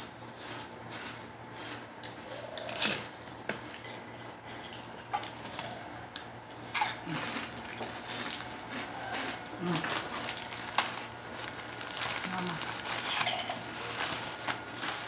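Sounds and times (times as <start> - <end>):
foil tray rustles: 9.8 - 15.0.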